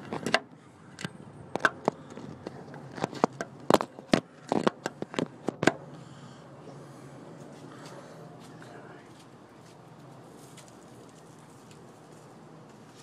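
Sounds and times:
phone handling clicks and scrapes: 0.0s - 5.8s.

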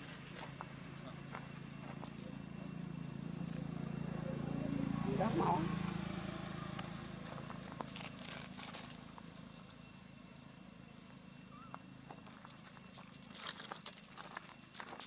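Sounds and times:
footsteps on dry leaves and gravel: 7.2s - 9.2s, 12.1s - 15.0s.

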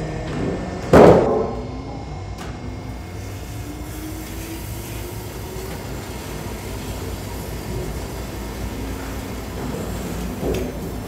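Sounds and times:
band saw machinery rumbling: 0.0s - 11.0s
loud thump: 0.9s - 1.6s.

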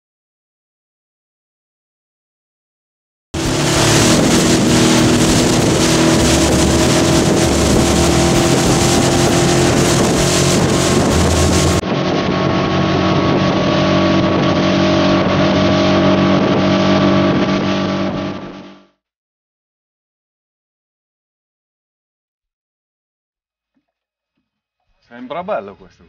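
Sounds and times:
rush of wind and water: 3.4s - 18.4s
motorboat engine running: 3.4s - 18.9s.

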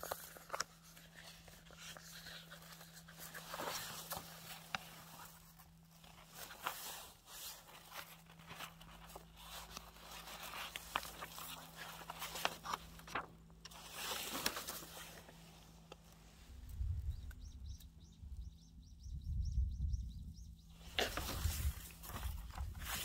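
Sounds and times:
paper sheets rustling: 0.0s - 16.2s, 20.9s - 23.0s.

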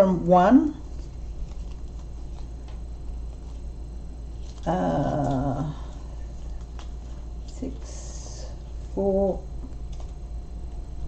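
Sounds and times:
plastic packets rustling: 0.8s - 7.9s.

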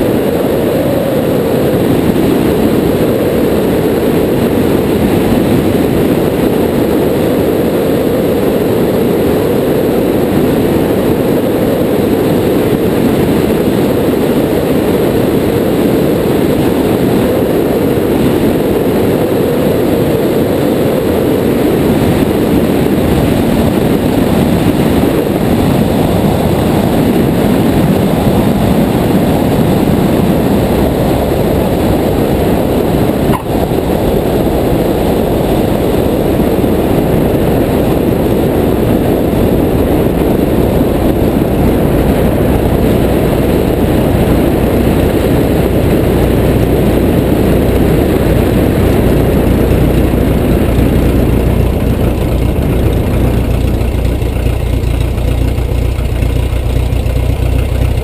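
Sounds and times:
airplane engine and propeller: 0.0s - 58.0s
wind rush on microphone: 0.0s - 58.0s.

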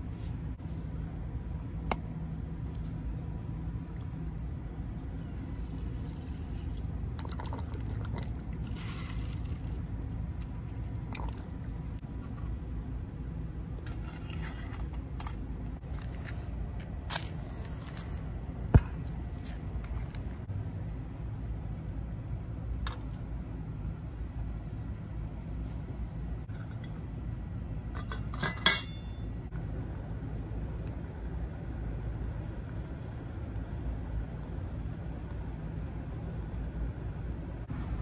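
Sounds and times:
low background rumble: 0.0s - 38.0s
fuel trickling into stove: 5.2s - 9.9s.

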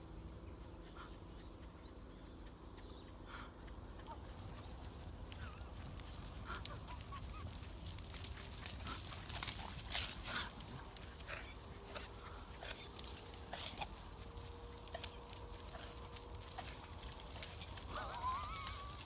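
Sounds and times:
sheep hooves thudding on grass: 3.7s - 19.0s.

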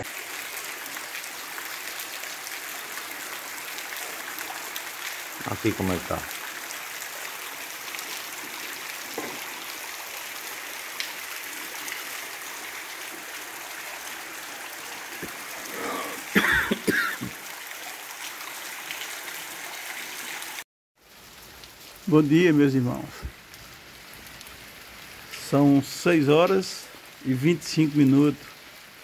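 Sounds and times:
rain on cobblestones: 0.0s - 29.0s
runoff water streaming: 0.0s - 29.0s
person coughing: 15.7s - 17.3s.

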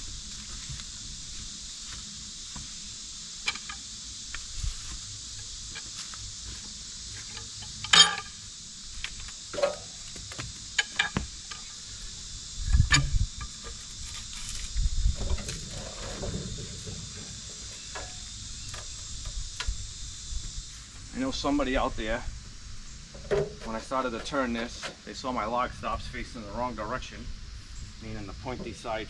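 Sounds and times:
high insect buzz: 0.0s - 29.0s
knocks and clinks on log: 3.4s - 3.8s, 7.3s - 8.4s, 9.5s - 11.7s.

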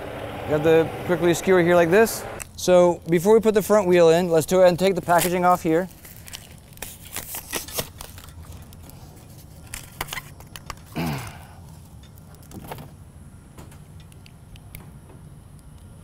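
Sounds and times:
packaging rustling: 4.8s - 11.0s.

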